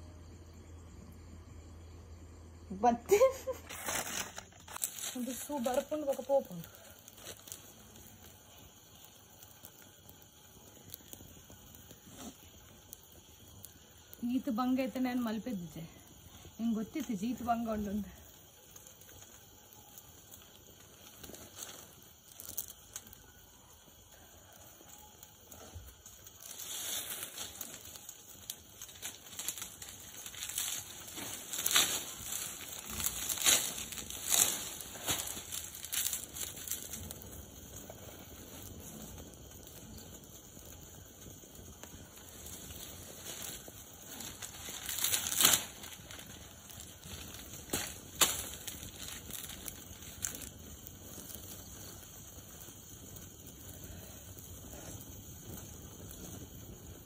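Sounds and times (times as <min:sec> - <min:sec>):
fire hissing: 0:00.0 - 0:57.0
dry sticks crackling in fire: 0:00.1 - 0:57.0
dry fronds rustling and swishing: 0:03.7 - 0:06.4, 0:26.3 - 0:37.2, 0:42.7 - 0:50.5.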